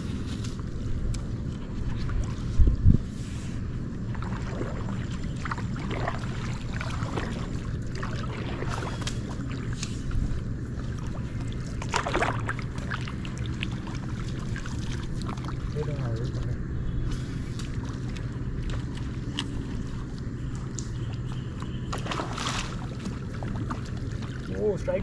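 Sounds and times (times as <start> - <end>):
low rumble: 0.0 - 25.0
water lapping against a boat: 0.0 - 25.0
water splash: 4.1 - 9.8, 11.0 - 15.8, 21.9 - 24.5
light ticks: 20.5 - 21.7.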